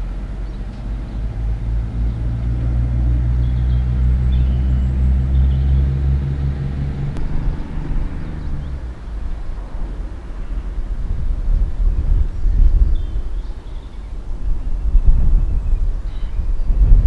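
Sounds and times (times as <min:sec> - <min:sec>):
diesel railcar engine droning: 0:00.0 - 0:11.3.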